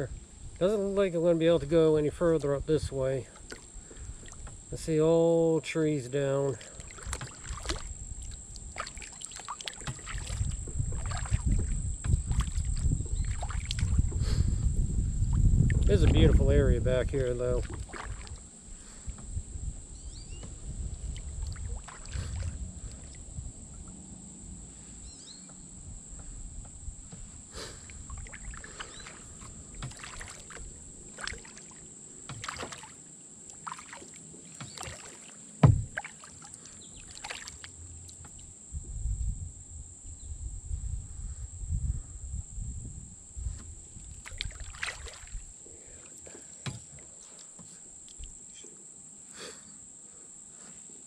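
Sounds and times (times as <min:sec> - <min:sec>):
paddle splashing in water: 0:03.3 - 0:04.6, 0:06.5 - 0:14.7, 0:17.5 - 0:19.3, 0:20.3 - 0:23.2, 0:27.1 - 0:38.5, 0:44.1 - 0:47.6
paddle knocking on plastic hull: 0:09.7 - 0:14.9, 0:29.4 - 0:30.6, 0:32.2 - 0:32.8, 0:34.6 - 0:36.1.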